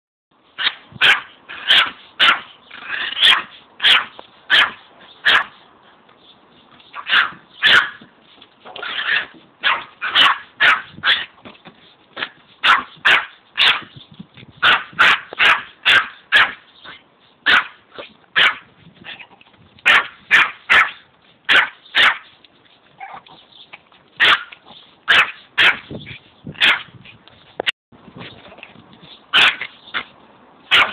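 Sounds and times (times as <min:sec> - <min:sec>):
small dog barking: 0:00.6 - 0:02.5, 0:03.2 - 0:05.6, 0:07.0 - 0:08.1, 0:08.8 - 0:11.3, 0:12.2 - 0:13.9, 0:14.6 - 0:16.6, 0:17.4 - 0:17.8, 0:18.4 - 0:18.7, 0:19.8 - 0:22.2, 0:24.2 - 0:25.9, 0:26.6 - 0:26.9, 0:29.3 - 0:30.1, 0:30.7 - 0:30.9.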